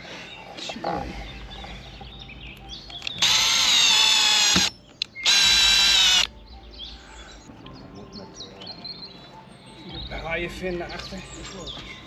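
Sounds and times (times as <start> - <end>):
power drill whining: 3.2 - 6.3.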